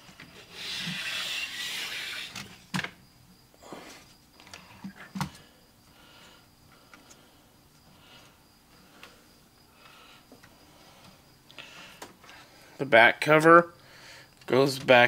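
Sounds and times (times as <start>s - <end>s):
plastic rubbing scrape: 0.2s - 2.7s.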